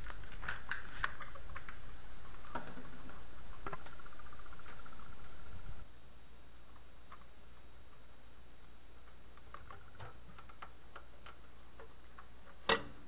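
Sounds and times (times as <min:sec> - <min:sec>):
faint buzz: 0:00.0 - 0:09.4.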